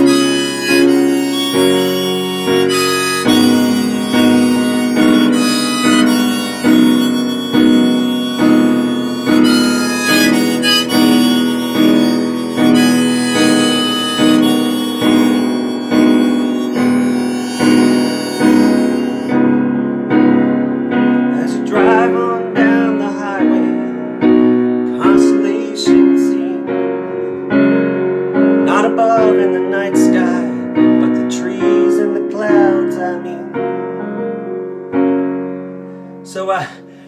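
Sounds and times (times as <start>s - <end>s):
harmonica melody: 0.0s - 34.2s
keyboard chords: 0.0s - 37.0s.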